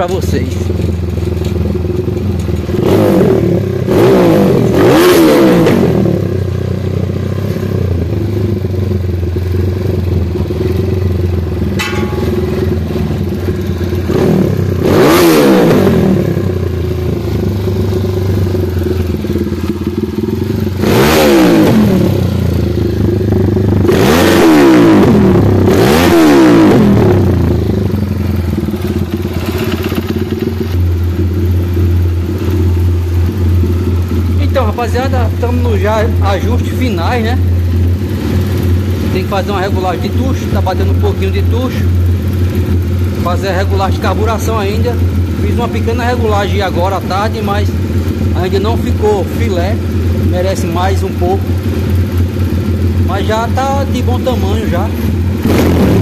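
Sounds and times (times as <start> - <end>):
motorcycle engine idling and revving: 0.0 - 56.0.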